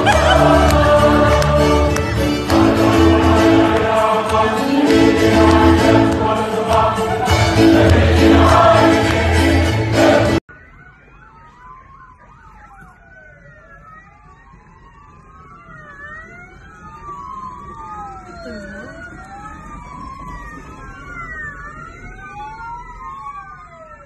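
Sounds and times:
loud choir singing: 0.0 - 10.4
police sirens wailing: 0.0 - 24.0.

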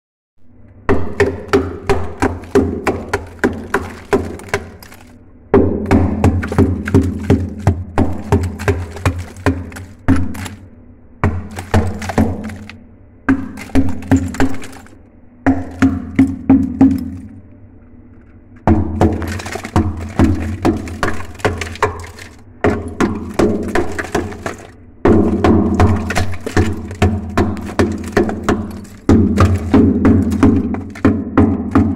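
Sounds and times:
hammer chipping ice: 1.0 - 5.2, 5.9 - 10.6, 11.2 - 14.9, 18.7 - 31.9.

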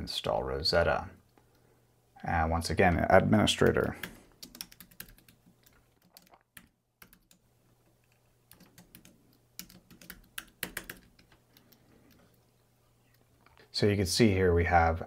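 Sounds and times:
faint keyboard typing: 2.8 - 13.7.

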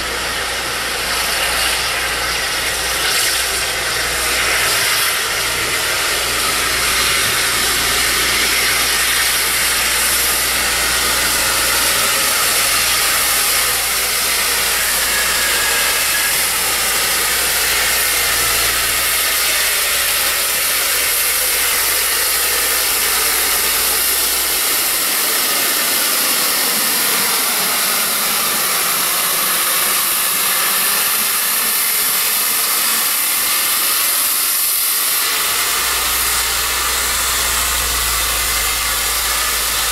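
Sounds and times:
steam locomotive hissing: 0.0 - 39.9
low hum: 35.6 - 39.9.

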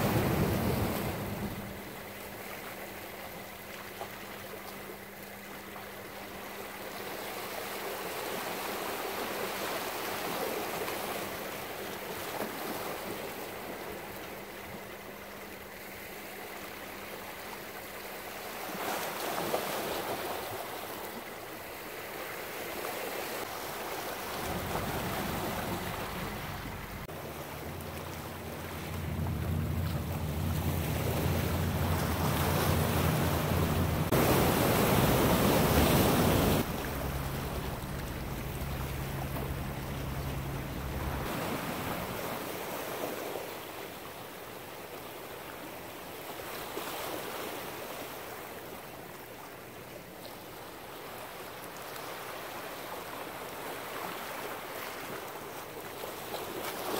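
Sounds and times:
surf breaking on rocks: 0.0 - 2.0, 22.7 - 43.7
low steady drone: 23.7 - 35.1, 36.4 - 42.3
wind buffeting microphone: 24.2 - 42.4.

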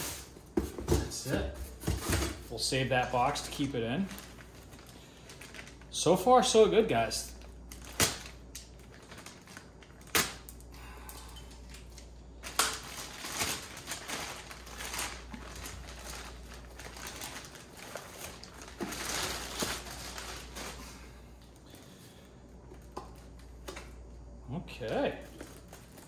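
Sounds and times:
plastic bag crinkling: 2.7 - 10.7, 11.5 - 21.9.

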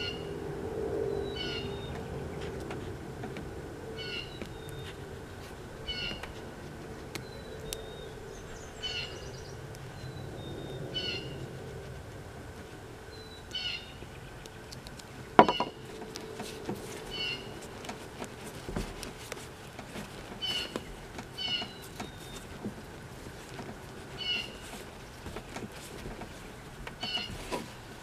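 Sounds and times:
sharp knock: 15.4 - 15.8.

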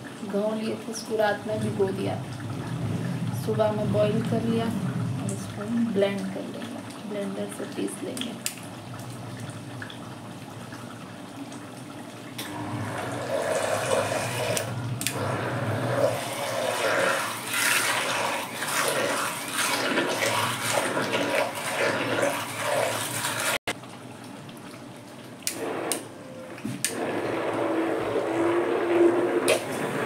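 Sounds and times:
hand blender churning mash: 12.6 - 23.6.

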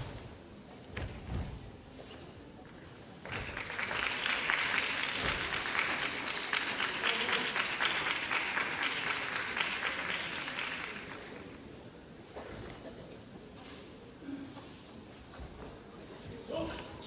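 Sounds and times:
audience applauding: 3.3 - 11.4.

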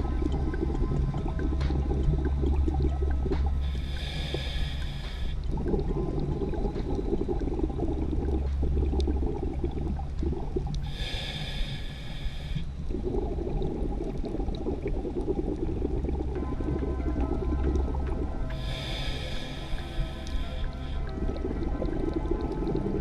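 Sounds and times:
bubbling exhale: 0.0 - 23.0
hissing regulator inhale: 3.6 - 5.5, 10.8 - 12.8, 18.5 - 21.2.

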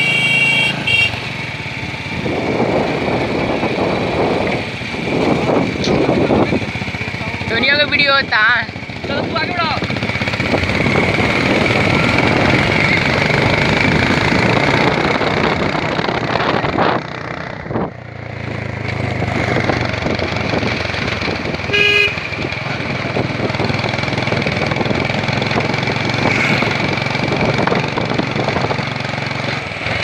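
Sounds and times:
motorcycle engines running: 0.0 - 30.0
road and wind noise: 0.0 - 30.0
short horn toot: 21.7 - 22.3.

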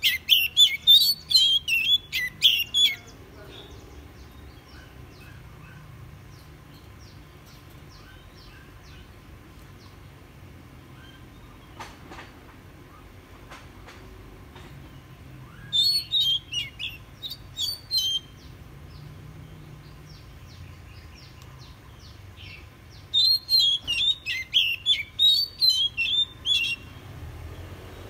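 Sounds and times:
bird singing whistled phrases: 0.0 - 3.1, 15.5 - 18.5, 23.1 - 27.0.

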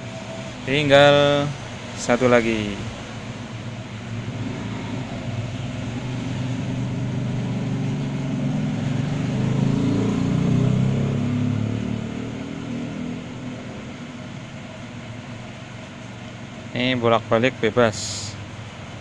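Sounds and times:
passing vehicle engine rumble: 0.0 - 19.0.

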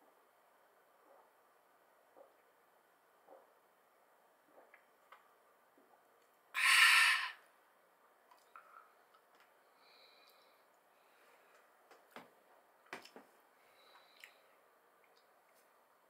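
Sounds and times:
man exhaling breathily: 6.6 - 7.4.

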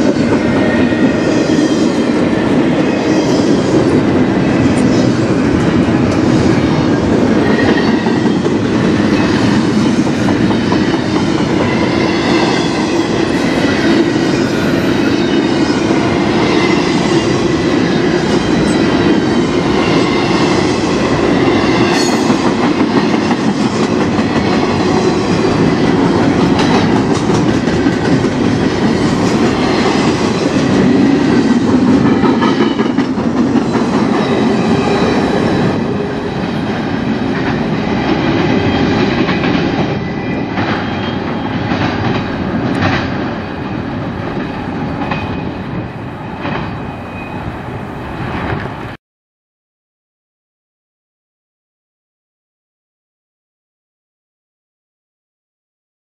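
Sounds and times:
freight train wheels rumbling on rail: 0.0 - 49.0
high-pitched wheel squeal: 46.2 - 48.3.

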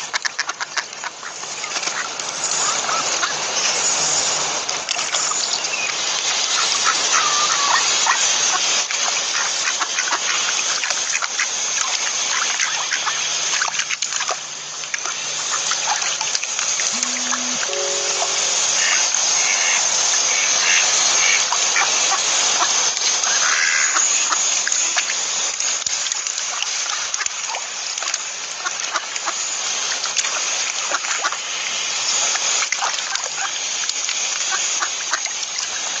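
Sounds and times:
water splashing and trickling: 0.0 - 17.6, 19.5 - 36.0
short calls: 16.9 - 19.8.

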